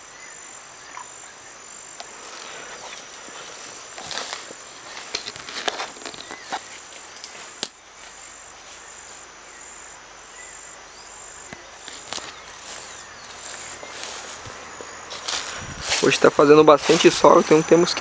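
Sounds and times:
high-pitched insect drone: 0:00.0 - 0:18.0.

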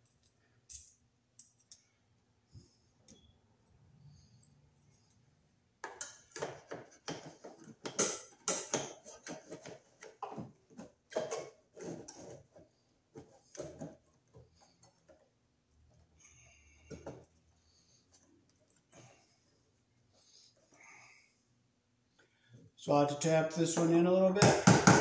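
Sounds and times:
pliers clicking and scraping metal: 0:00.0 - 0:01.9.

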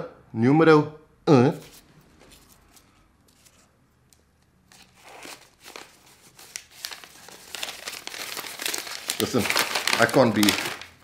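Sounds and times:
paper crumpling and tearing: 0:04.7 - 0:11.0.

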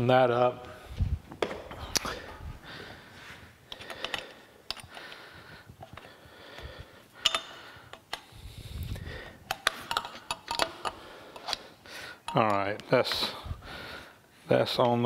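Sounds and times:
wrench clicking on metal: 0:07.2 - 0:08.3, 0:09.5 - 0:11.6
wrench scraping on bolt: 0:09.5 - 0:11.6.

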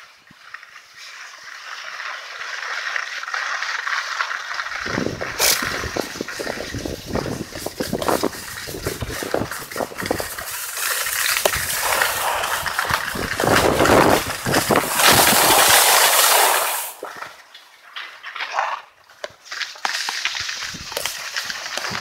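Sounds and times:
skis scraping over snow: 0:00.0 - 0:22.0
wind on microphone: 0:04.8 - 0:10.4, 0:11.5 - 0:16.0.

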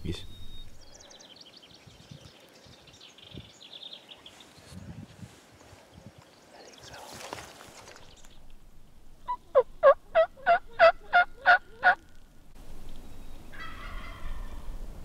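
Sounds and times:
turkey yelping: 0:09.3 - 0:12.0, 0:13.5 - 0:14.6.

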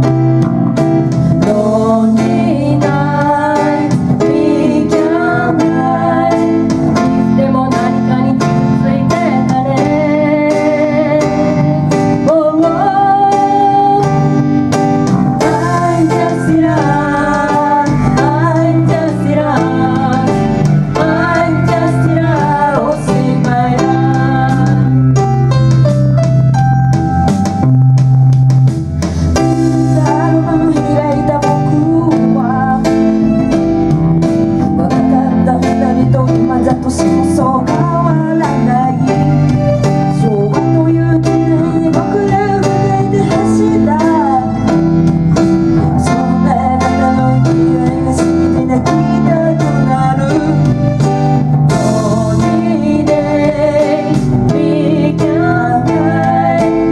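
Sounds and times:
electric bass: 0:00.0 - 0:56.9
woman singing: 0:01.4 - 0:14.3, 0:15.4 - 0:25.0, 0:29.9 - 0:33.0, 0:34.7 - 0:39.3, 0:40.1 - 0:44.7, 0:46.0 - 0:50.8, 0:51.7 - 0:56.9
synthesizer keyboards: 0:13.2 - 0:36.4.

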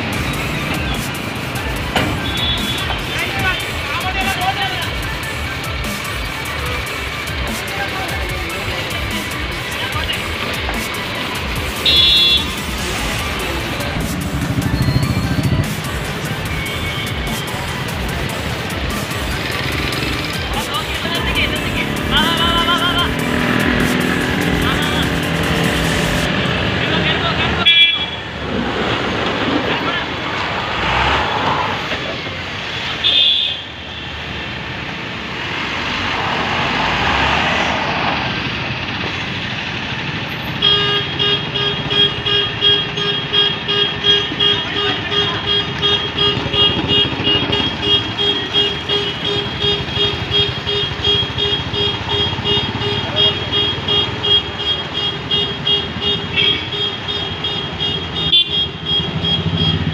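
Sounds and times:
diesel truck engine running: 0:04.8 - 0:27.6.

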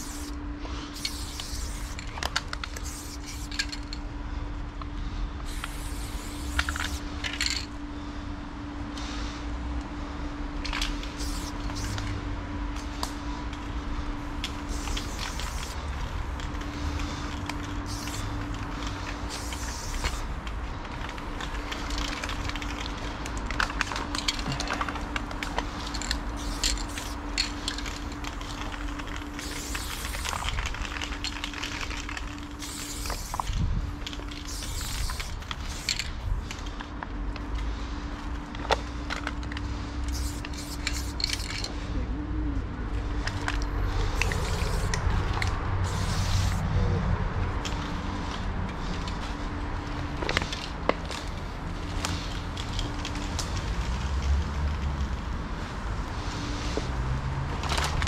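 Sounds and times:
spray can clicks and rattles: 0:00.0 - 0:00.3, 0:01.0 - 0:04.0, 0:05.5 - 0:07.7, 0:10.7 - 0:12.2, 0:14.4 - 0:36.6, 0:40.1 - 0:41.7, 0:43.3 - 0:46.6
spray paint can hissing: 0:00.0 - 0:03.8, 0:05.4 - 0:07.5, 0:11.0 - 0:12.2, 0:14.2 - 0:36.6, 0:40.0 - 0:41.7, 0:43.9 - 0:46.6.

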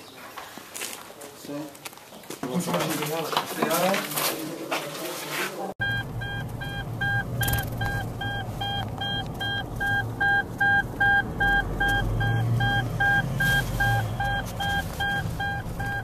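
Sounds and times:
low hum of moving vehicle: 0:05.8 - 0:16.0
vehicle warning chime beeping: 0:05.8 - 0:16.0.

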